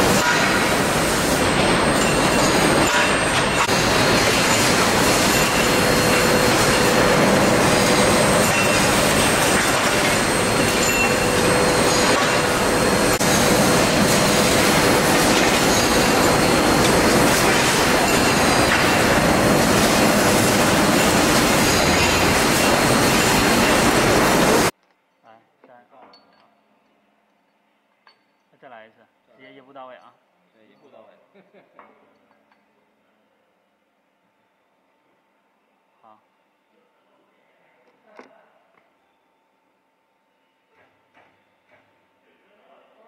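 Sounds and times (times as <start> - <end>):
machinery hiss: 0.0 - 24.7
metallic machinery clatter: 0.0 - 24.7
steady mid-pitched machine whine: 0.0 - 24.7.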